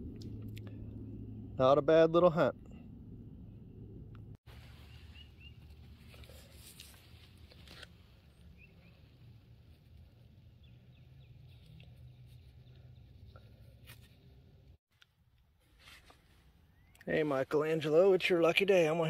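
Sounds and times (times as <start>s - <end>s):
low rumble: 0.0s - 4.8s.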